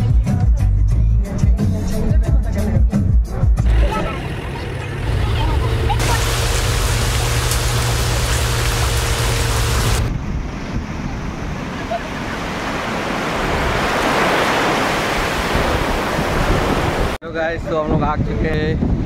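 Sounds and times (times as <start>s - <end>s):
sea surf washing on shore: 5.9s - 10.1s, 11.8s - 17.2s
wind on microphone: 6.0s - 19.0s.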